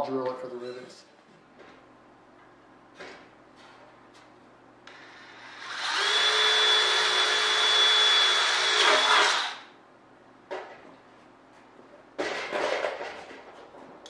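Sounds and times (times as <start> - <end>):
cordless drill whining: 4.9 - 9.7.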